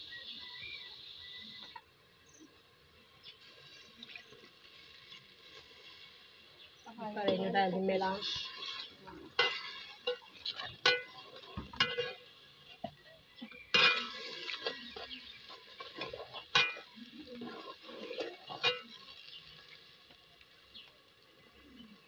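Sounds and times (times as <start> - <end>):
skimmer scraping metal pot: 7.2 - 12.9, 13.6 - 19.4.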